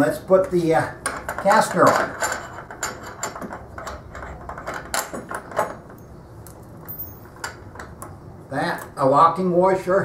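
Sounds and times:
metal parts clicking and knocking: 1.0s - 8.1s.

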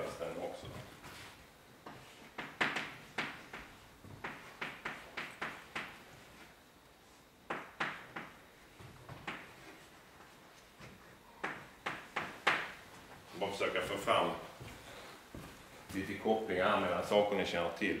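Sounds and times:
chalk tapping and scratching on chalkboard: 1.1s - 6.5s.

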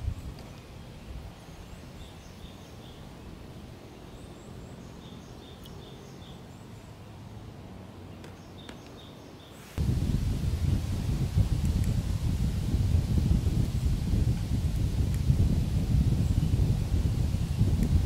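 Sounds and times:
songbird chirping: 0.0s - 7.3s, 8.0s - 10.9s
wind and leaves: 0.0s - 18.0s.

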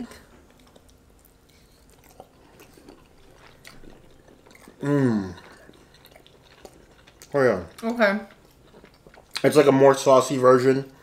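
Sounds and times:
person chewing: 0.1s - 9.8s
person saying mmm: 4.8s - 5.5s.

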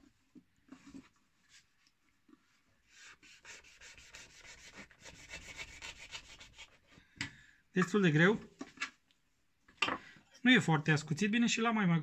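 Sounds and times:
knife sawing through rope: 2.9s - 6.9s.

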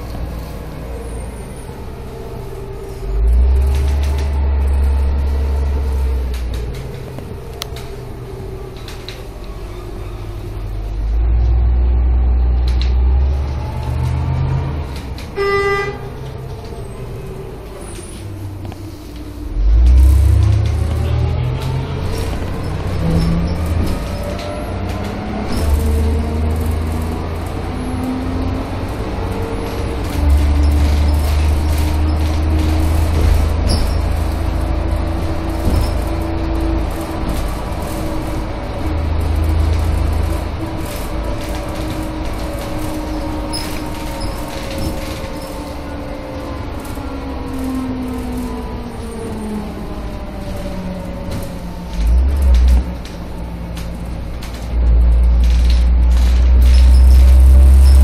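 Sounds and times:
bus engine rumble: 0.0s - 58.0s
vehicle horn toot: 15.4s - 16.1s.

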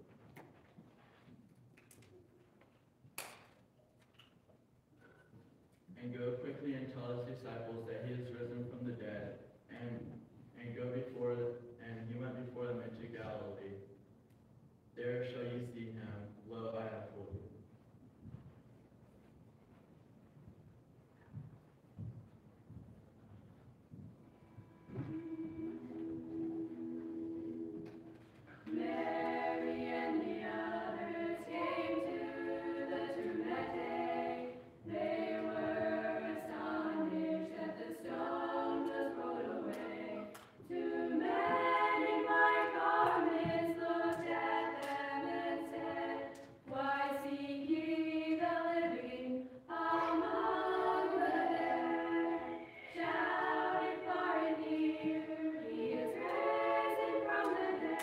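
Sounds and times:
choir singing a cappella: 24.6s - 58.0s.

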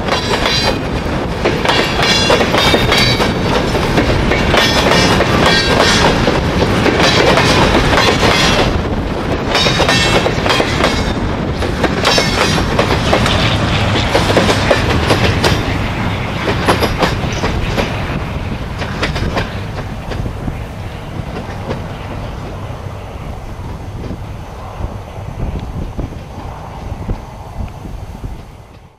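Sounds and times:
train wheels clattering over rail joints: 0.0s - 22.6s.

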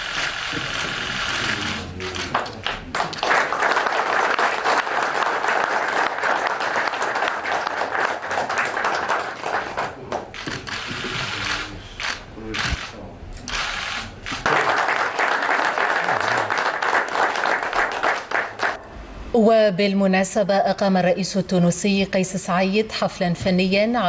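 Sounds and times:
audience applause: 1.4s - 11.4s, 13.9s - 18.8s.

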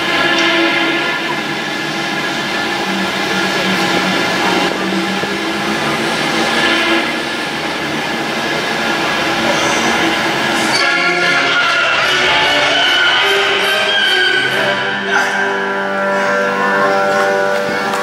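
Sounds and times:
squealing tones: 9.6s - 18.0s
music over loudspeakers: 12.8s - 18.0s.

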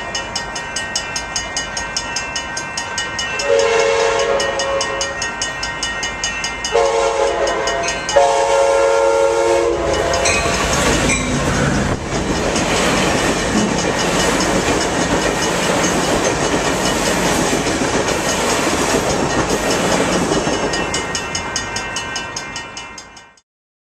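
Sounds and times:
passenger train passing: 0.0s - 23.4s
train wheels clacking over rail joints: 9.8s - 22.5s.

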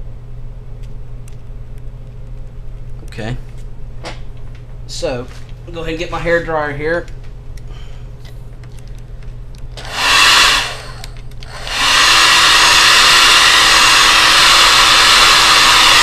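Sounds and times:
hair dryer running: 9.8s - 16.0s.

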